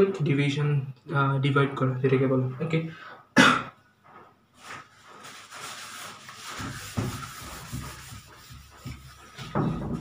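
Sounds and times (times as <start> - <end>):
whiteboard being wiped: 4.0 - 10.0.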